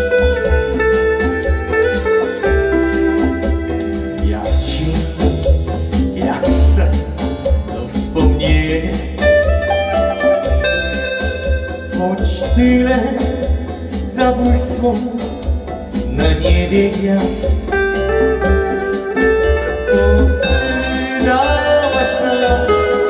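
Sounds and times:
electric guitar: 0.0 - 23.0
steady beat: 0.0 - 23.0
man singing: 4.1 - 9.7, 11.8 - 18.1, 20.3 - 23.0.

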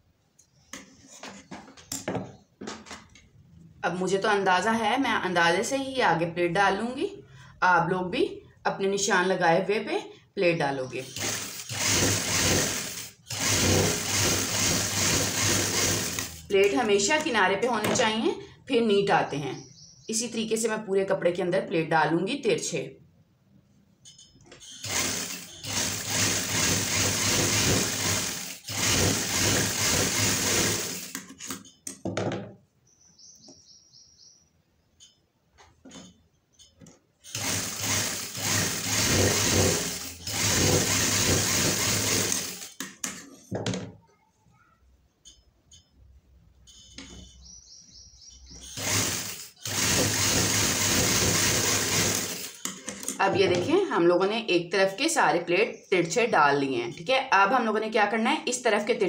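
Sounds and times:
sewing machine stitching: 11.0 - 16.8, 24.6 - 31.6, 37.2 - 42.9, 48.6 - 53.7.

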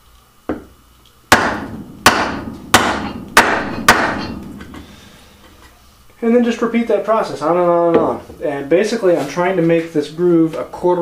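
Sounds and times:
mallet striking chisel: 1.3 - 5.0.

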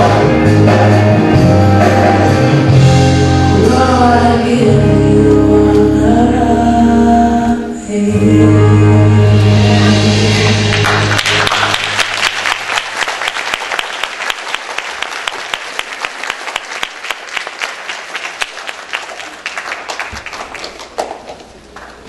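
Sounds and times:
crowd applauding: 10.6 - 22.0.

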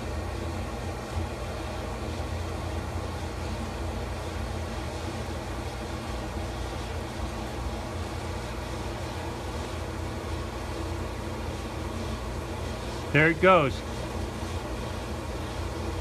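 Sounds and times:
forge rushing noise: 13.0 - 13.9.

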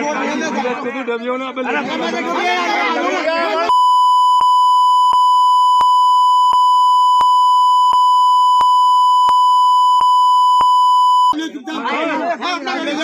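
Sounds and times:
censor bleep tone: 3.7 - 11.4.

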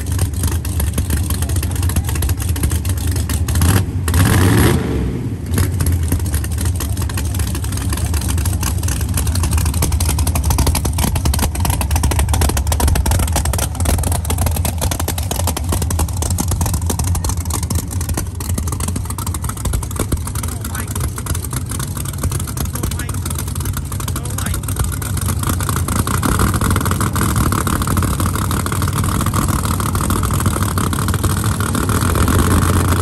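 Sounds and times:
engine idling with heavy pulse: 0.0 - 33.0
engine revving: 0.0 - 33.0.

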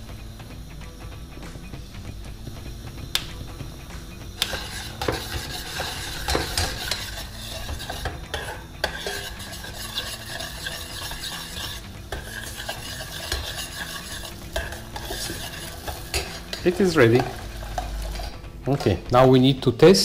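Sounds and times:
butter sizzling: 0.0 - 19.5
metal spoon knocking on pan: 4.4 - 17.9.

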